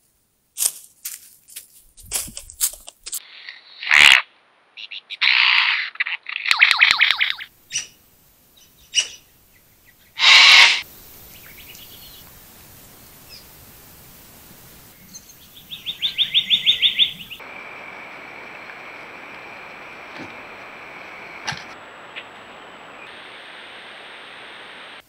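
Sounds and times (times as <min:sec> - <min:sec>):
bird trilling rapidly: 0:08.9 - 0:09.2
lyrebird singing loudly: 0:10.2 - 0:10.8.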